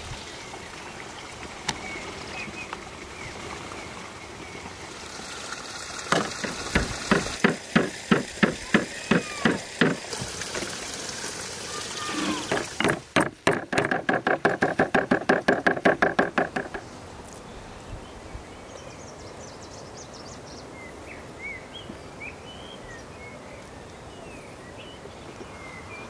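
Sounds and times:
wooden mallet pounding meat: 6.1 - 10.0, 12.5 - 16.8.

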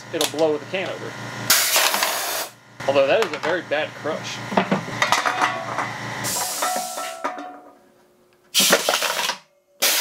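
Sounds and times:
short loud air blast: 8.6 - 9.0, 9.8 - 10.0.

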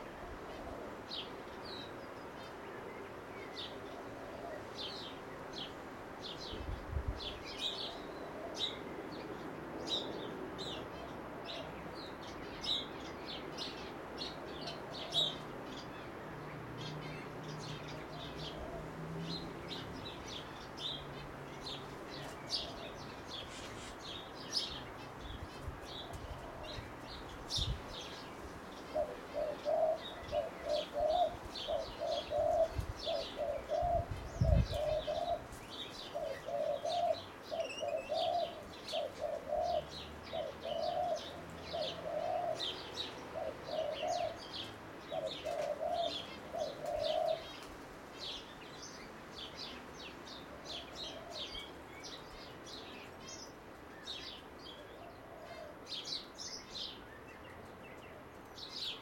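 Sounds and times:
dove cooing: 0.0 - 1.4, 3.6 - 5.1, 7.6 - 9.0, 14.6 - 15.4, 17.6 - 19.0, 26.0 - 27.1, 28.0 - 47.7, 50.5 - 51.7, 54.8 - 55.9
small birds chirping: 0.0 - 59.0.

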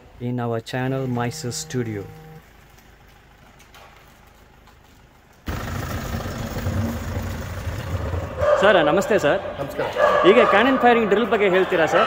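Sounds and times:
tow truck engine running: 0.8 - 9.7.

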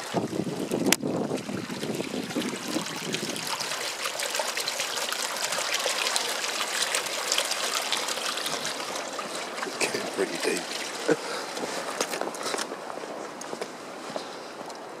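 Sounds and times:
wind rumble on microphone: 0.0 - 3.7
floodwater bubbling and splashing: 0.0 - 12.9.

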